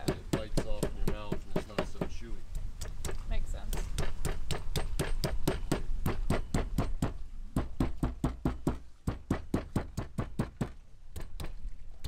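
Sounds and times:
metal mallet beating octopus: 0.0s - 2.2s.

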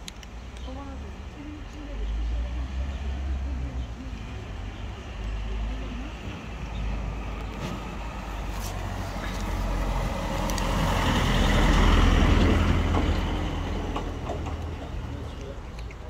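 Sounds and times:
vehicle passing: 0.8s - 16.0s.

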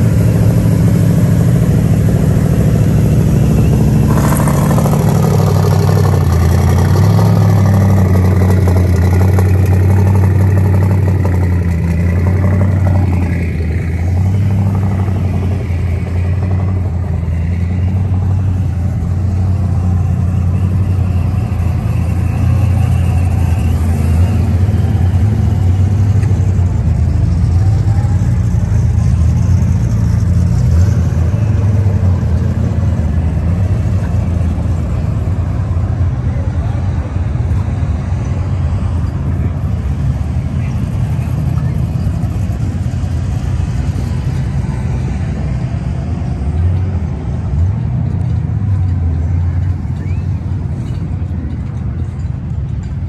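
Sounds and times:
car engine idling: 0.0s - 30.7s.

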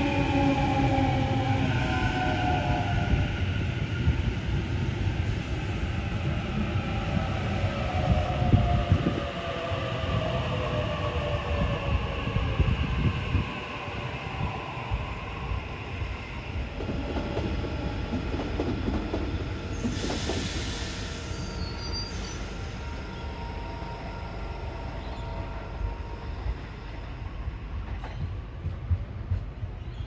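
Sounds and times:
train wheels rumbling on rail: 0.0s - 30.0s
hiss: 19.7s - 22.4s.

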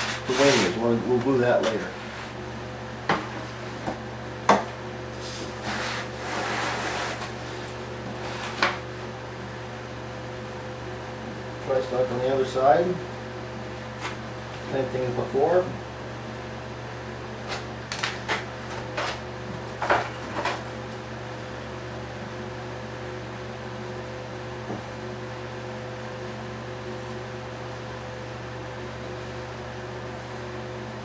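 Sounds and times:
fan humming: 0.0s - 31.0s.

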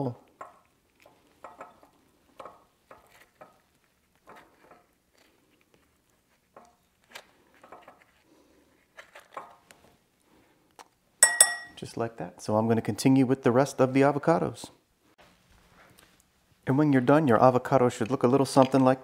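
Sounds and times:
metal spoon scooping avocado: 0.4s - 8.2s
chunks dropping into glass bowl: 11.2s - 11.8s.

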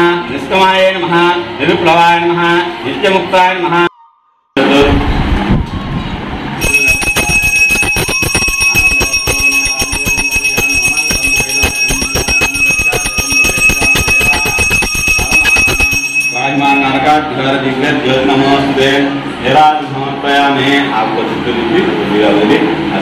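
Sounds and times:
hand bell ringing rapidly: 6.6s - 17.1s.

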